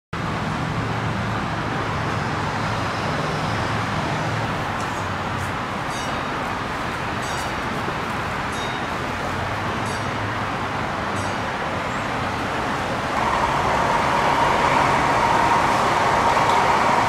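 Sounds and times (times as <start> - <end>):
diesel engine hum: 0.2 - 17.0
traffic noise: 0.2 - 17.0.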